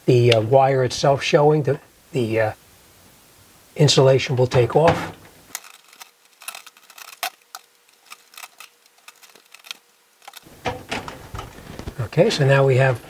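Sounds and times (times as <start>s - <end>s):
wire strippers clicking: 5.5s - 12.0s.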